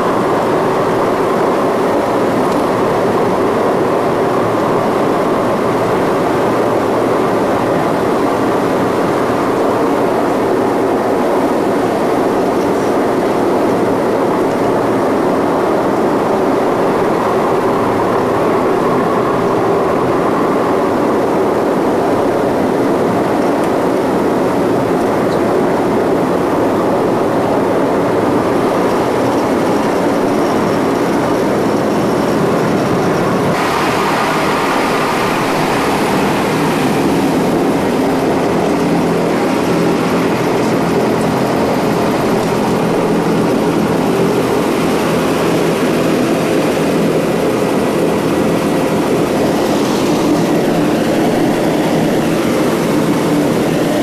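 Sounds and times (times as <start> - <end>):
loud gas turbine roar: 0.0 - 54.0
low hum: 0.0 - 54.0.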